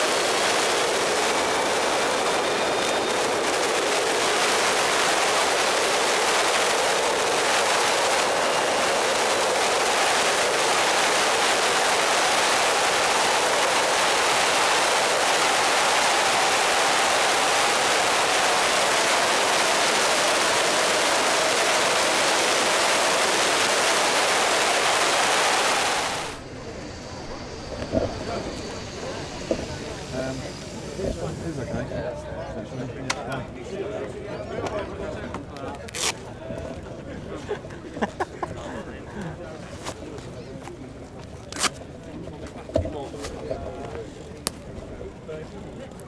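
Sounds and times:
motorcycle road noise: 0.0 - 31.9
wind rushing: 0.0 - 31.9
faint wavering whine: 0.0 - 32.9.

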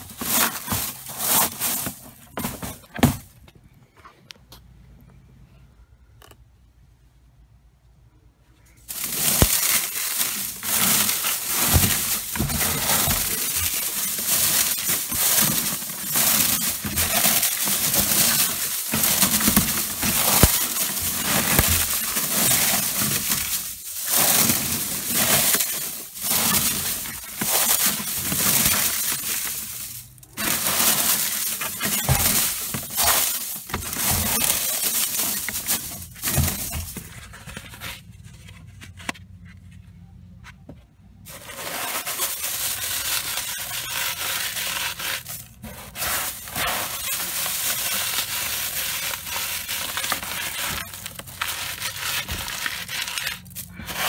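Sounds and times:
dry seed pods crackling: 8.8 - 37.5, 41.3 - 54.0.

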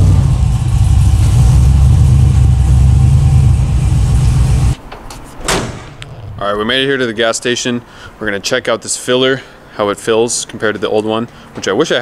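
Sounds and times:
pickup truck engine rumbling: 0.0 - 4.9.

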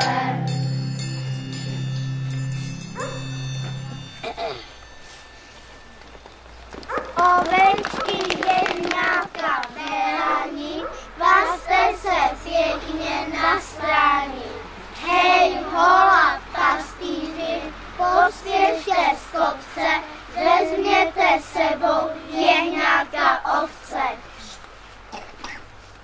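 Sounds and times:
children singing a christmas song: 0.0 - 5.2, 7.2 - 24.6.

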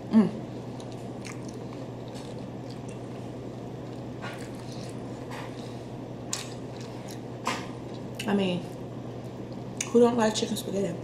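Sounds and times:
person chewing: 0.7 - 8.3.

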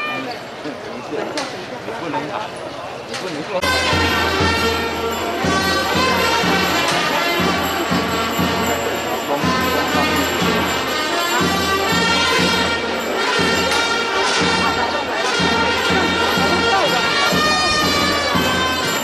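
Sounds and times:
sustained wind instruments: 0.0 - 0.5, 3.6 - 19.0
regular drumbeat: 3.6 - 19.0.

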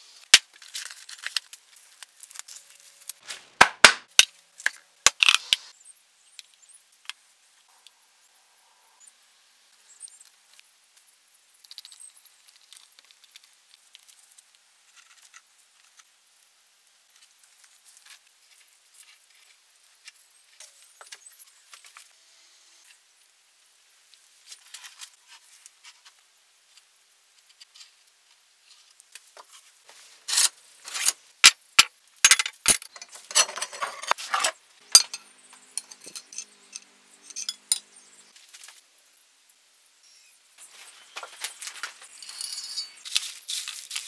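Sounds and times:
handling clicks and rustles: 29.2 - 38.7
hard objects clinking and rattling: 30.3 - 38.0, 41.8 - 44.0.

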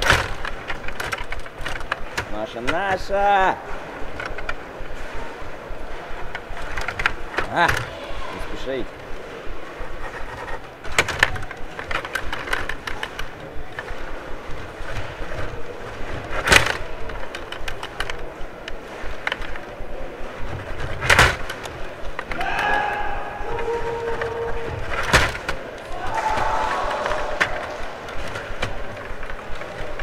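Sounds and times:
rod hockey table clatter: 9.8 - 30.0.

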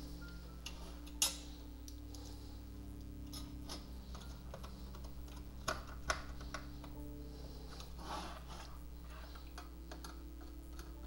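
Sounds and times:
faint steady hum: 0.0 - 11.0
screwdriver clicking on metal: 9.4 - 11.0.

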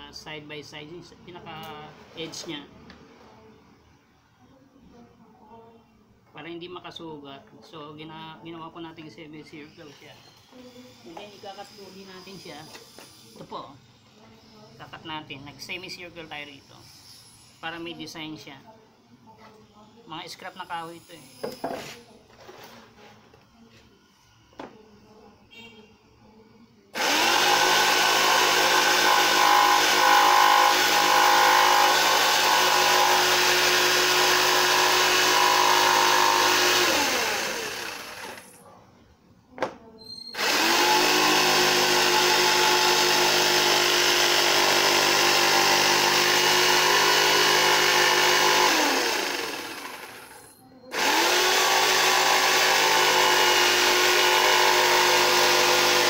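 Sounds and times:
electric jigsaw cutting plywood: 27.0 - 38.6, 40.4 - 56.0.

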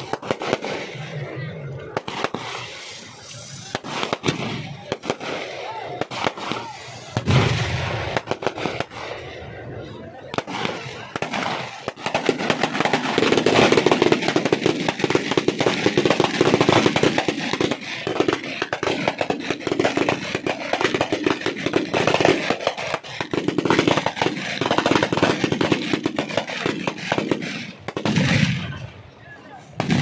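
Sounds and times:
firecrackers banging: 0.0 - 30.0.

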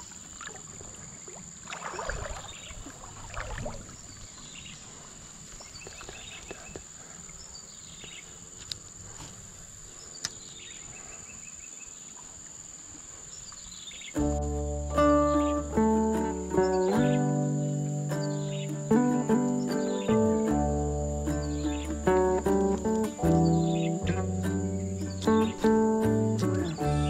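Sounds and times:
insects droning: 0.0 - 27.0
music with plucked notes: 14.2 - 27.0.

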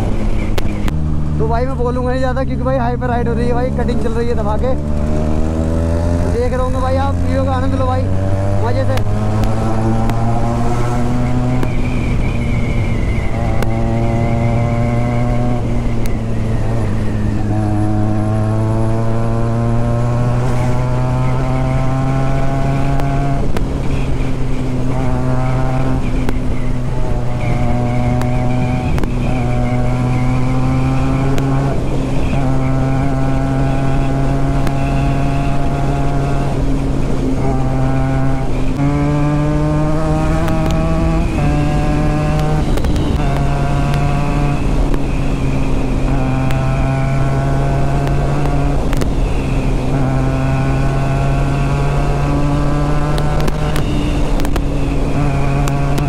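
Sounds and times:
motorcycle accelerating through gears: 0.0 - 56.0.

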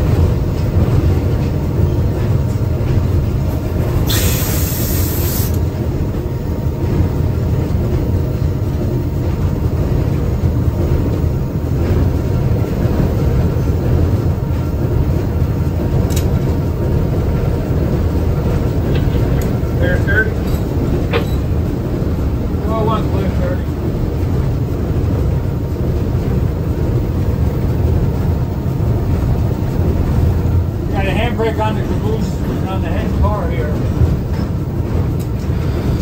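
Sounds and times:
diesel locomotive engine running: 0.0 - 36.0
short hiss: 4.1 - 5.6
click: 16.1 - 16.3.

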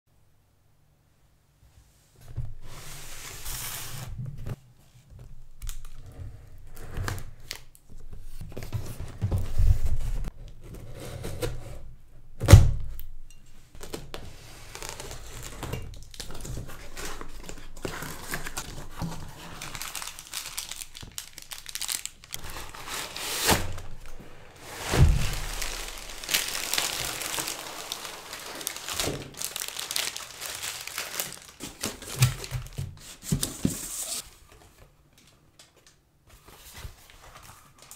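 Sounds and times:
cardboard and plastic rustling: 5.2 - 10.8, 13.8 - 37.9
cardboard box thumps and knocks: 24.8 - 25.8.

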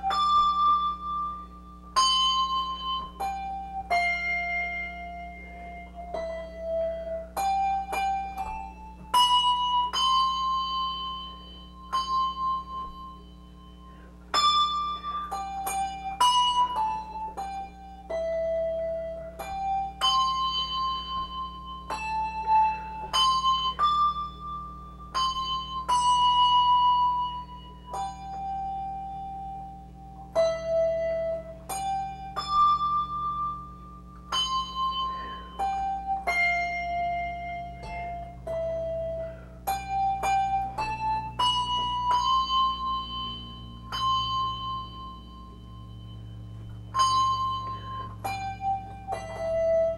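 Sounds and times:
handbells ringing a tune: 0.0 - 49.9.

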